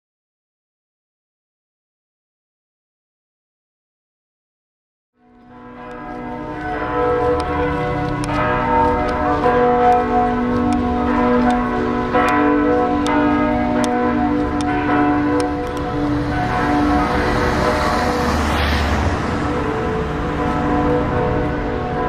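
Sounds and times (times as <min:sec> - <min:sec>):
church bells ringing: 0:05.2 - 0:22.0.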